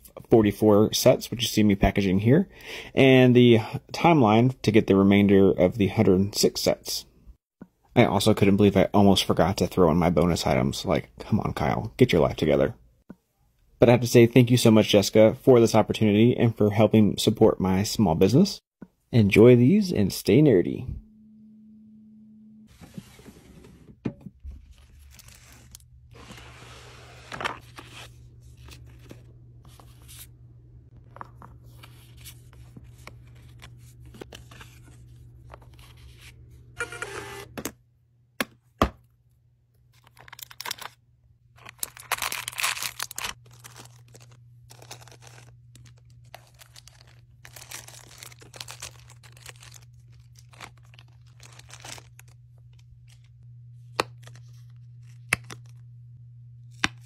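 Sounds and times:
low hum: 20.8 - 22.8, 41.7 - 57.0
packaging tearing: 40.0 - 41.0, 41.6 - 53.2
plastic bags rustling: 41.6 - 53.2.

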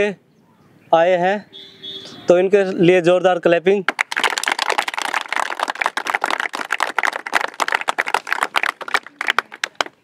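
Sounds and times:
group applauding: 3.9 - 10.0.

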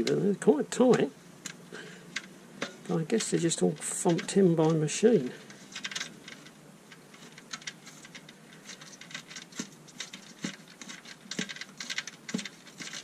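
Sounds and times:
screwdriver turning screw in plastic: 5.4 - 13.0.

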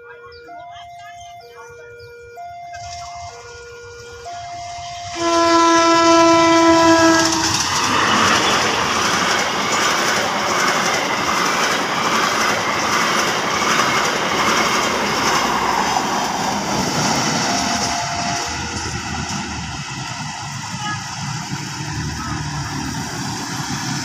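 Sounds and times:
locomotive multi-note horn: 1.8 - 8.9, 16.8 - 19.6, 20.2 - 22.6
train wheels clattering over rails: 6.9 - 24.0.

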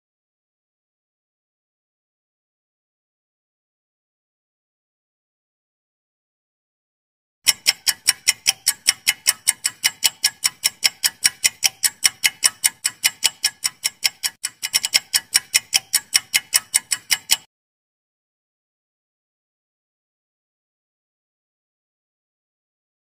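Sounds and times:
clock-like timer ticks: 7.4 - 17.5.

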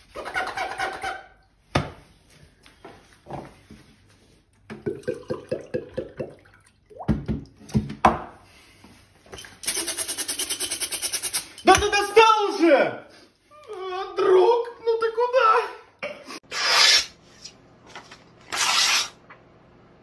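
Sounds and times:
beatboxed water glugging: 4.8 - 7.6.

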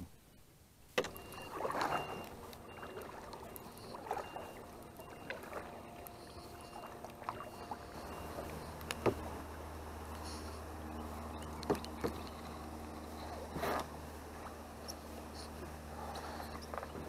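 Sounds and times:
canoe paddle splashing in water: 1.0 - 14.6.

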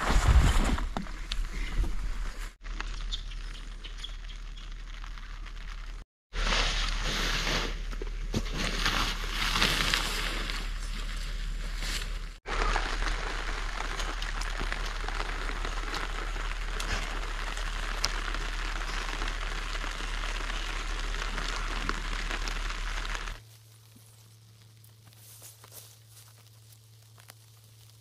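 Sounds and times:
steady rain pattering: 12.5 - 25.1.

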